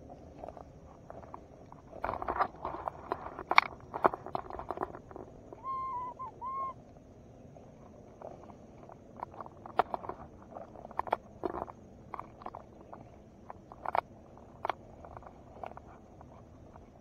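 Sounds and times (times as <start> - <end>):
two-note hooting call: 5.6 - 6.8.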